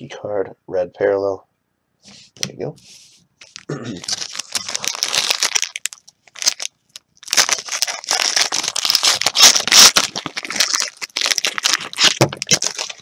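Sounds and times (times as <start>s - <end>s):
plastic wrapper crinkling and tearing: 3.4s - 13.0s.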